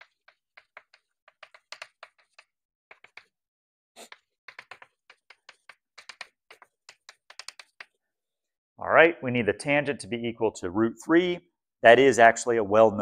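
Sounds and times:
chalk scratching on a blackboard: 0.0s - 3.3s, 4.0s - 8.0s.

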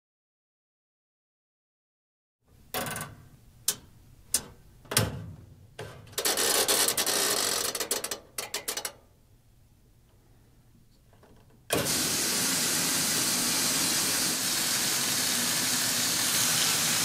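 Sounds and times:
sharp clicks and knocks: 2.7s - 9.0s.

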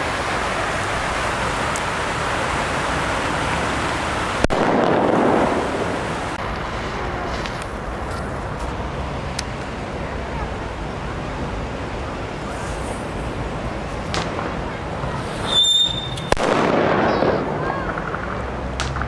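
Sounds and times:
fountain jets rushing: 0.0s - 19.0s
underwater firecracker bang: 4.5s - 6.0s, 15.5s - 19.0s.

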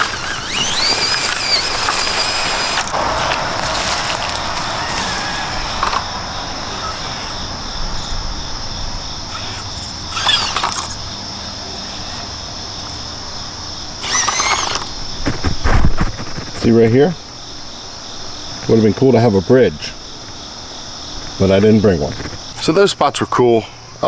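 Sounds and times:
short whining bursts: 0.0s - 8.6s, 9.2s - 12.3s, 14.0s - 15.4s
insects chirring: 0.0s - 24.0s.

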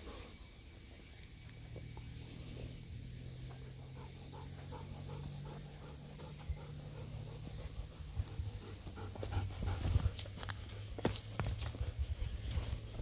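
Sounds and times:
dog panting: 3.3s - 11.0s.

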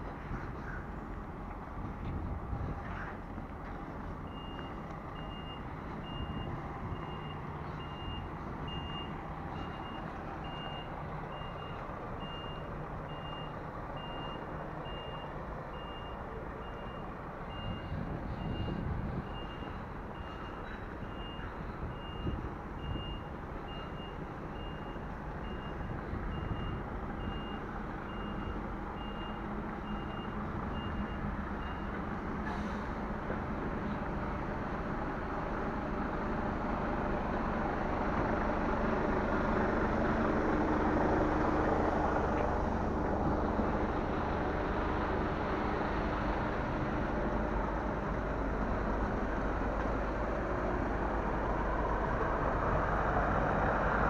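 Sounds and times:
low engine rumble: 0.0s - 54.0s
reversing alarm beeping: 4.3s - 32.0s.

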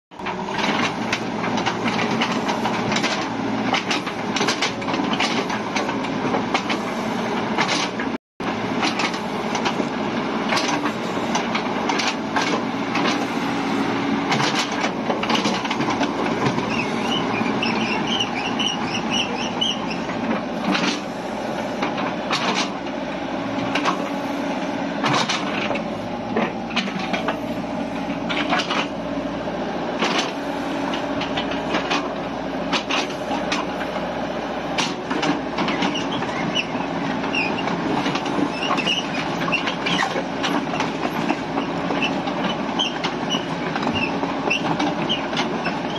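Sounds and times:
excavator diesel engine running: 0.2s - 45.9s
metal clanks and knocks: 14.3s - 21.2s, 21.8s - 23.0s, 23.6s - 24.1s, 25.0s - 29.0s, 30.0s - 34.0s.

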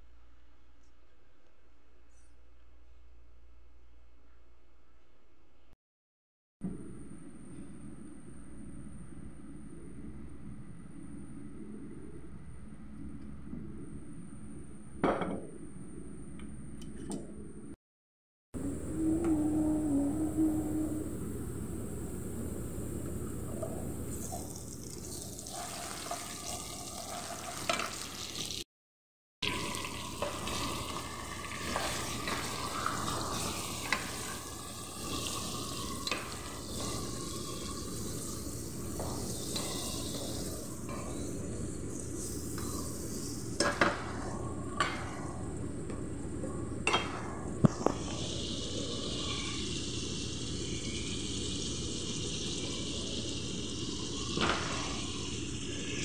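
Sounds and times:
food sizzling in oil: 22.1s - 28.7s, 29.4s - 44.2s, 47.8s - 56.0s
wooden spoon stirring pot: 29.7s - 45.2s.

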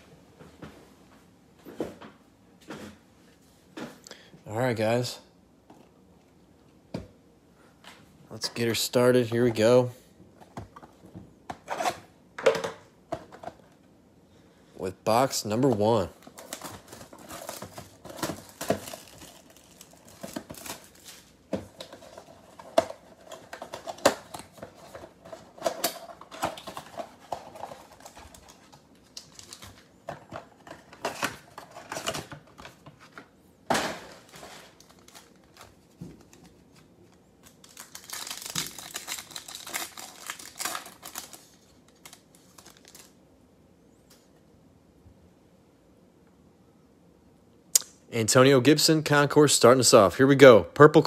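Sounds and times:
foil pack crinkling: 15.6s - 32.7s, 34.0s - 43.2s
plastic shrink-wrap crinkling and tearing: 16.3s - 24.6s, 25.5s - 29.9s, 37.4s - 43.2s.

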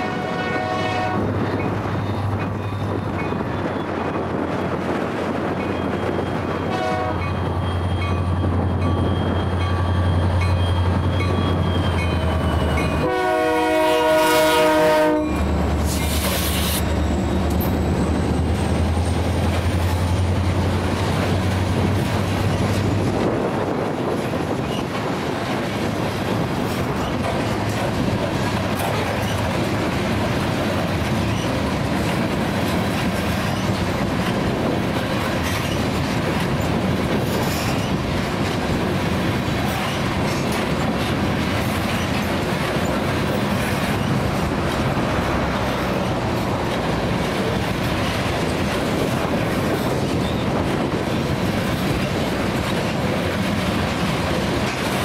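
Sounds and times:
train horn blast: 0.0s - 1.4s, 6.6s - 7.3s, 12.9s - 15.6s
locomotive engine rumble: 0.0s - 55.0s
train wheels clickety-clack: 1.1s - 55.0s.

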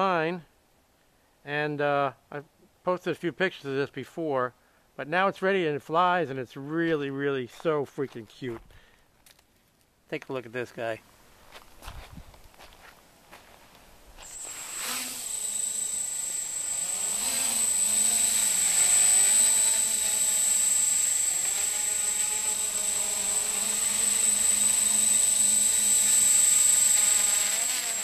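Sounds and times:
quadcopter motors whining: 14.2s - 28.0s.

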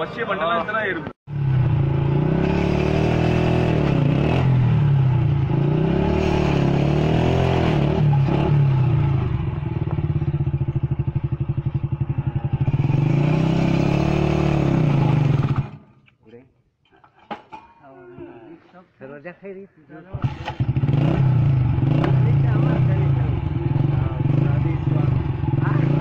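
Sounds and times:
small motorcycle engine revving: 1.3s - 15.8s, 20.2s - 26.0s.

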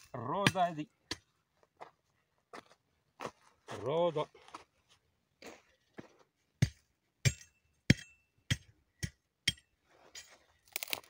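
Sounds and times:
hoe striking stony soil: 0.0s - 1.3s, 6.6s - 11.0s.

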